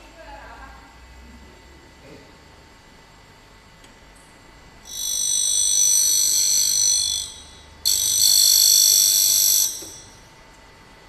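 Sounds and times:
grinding wheel grinding metal: 0:04.9 - 0:10.1.

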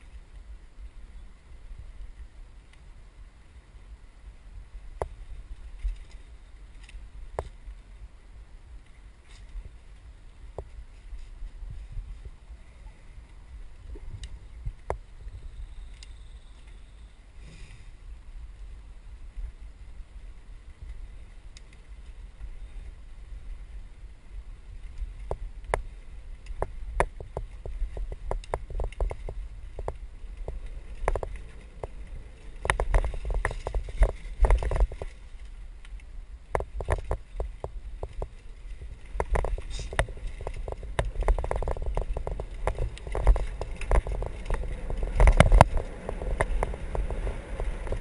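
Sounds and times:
wind rumble on microphone: 0:00.0 - 0:48.0
mountain bike rattling on trail: 0:04.8 - 0:12.4, 0:18.5 - 0:48.0.

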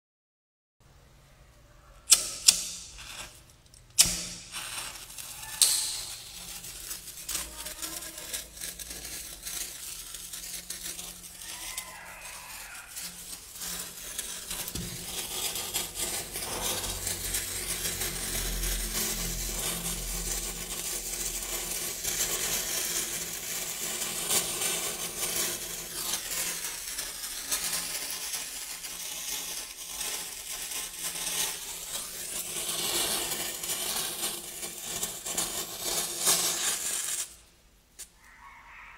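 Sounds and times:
lighter clicks: 0:02.1 - 0:03.2, 0:05.6 - 0:06.2
fuse fizzing and crackling: 0:03.0 - 0:37.5.

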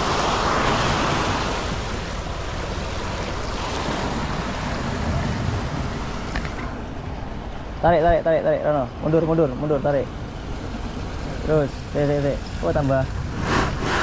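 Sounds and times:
waves breaking on rocks: 0:00.0 - 0:07.0.

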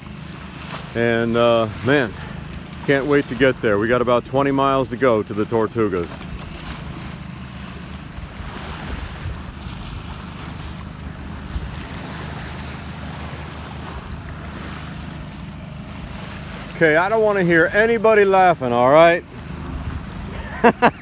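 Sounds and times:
outboard motor humming: 0:00.0 - 0:21.0
water rushing past hull: 0:00.0 - 0:21.0
wind on microphone: 0:08.2 - 0:15.4.

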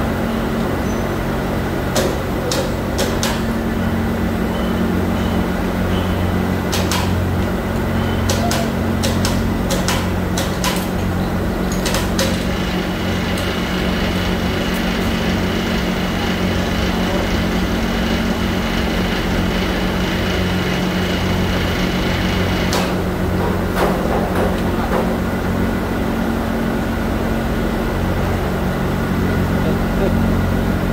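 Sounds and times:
factory machinery hum: 0:00.0 - 0:30.9
metallic clicks and knocks: 0:08.3 - 0:11.1.

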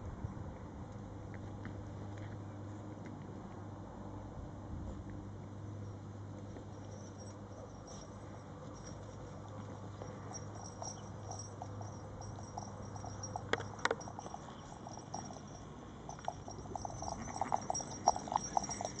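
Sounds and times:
puppies yipping and grunting: 0:14.0 - 0:19.0.

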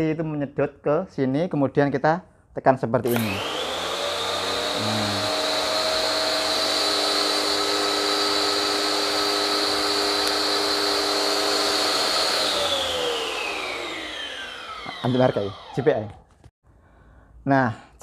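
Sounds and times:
pressure washer motor and pump: 0:03.0 - 0:16.2.

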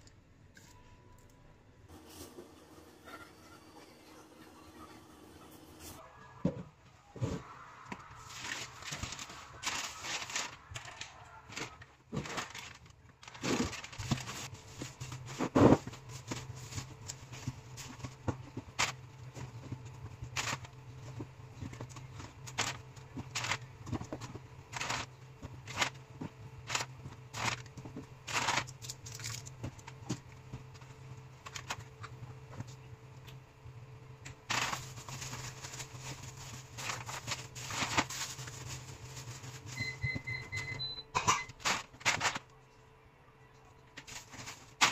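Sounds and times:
steady low hum: 0:00.0 - 0:44.9
plastic packaging crinkling: 0:08.2 - 0:20.7, 0:21.6 - 0:26.0, 0:26.6 - 0:30.0, 0:34.4 - 0:40.0, 0:41.5 - 0:42.5, 0:44.0 - 0:44.9.

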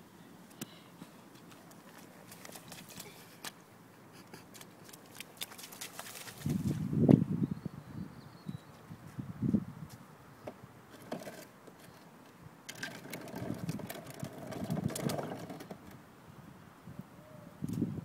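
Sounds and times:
plastic toy wheels rattling on tarmac: 0:11.0 - 0:11.5, 0:12.7 - 0:15.9.

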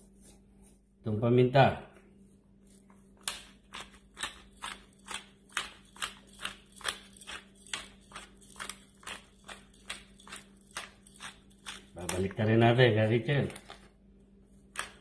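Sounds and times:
pepper shaker rattling: 0:03.5 - 0:12.4.

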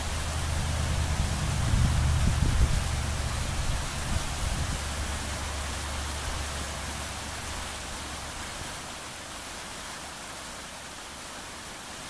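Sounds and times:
low rumble: 0:00.0 - 0:08.4
creek water flowing: 0:00.0 - 0:12.0.

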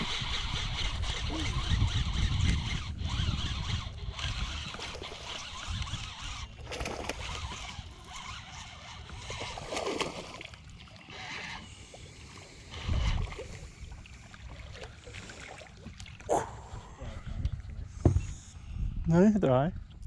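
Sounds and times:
fish splashing in water: 0:06.5 - 0:11.7.

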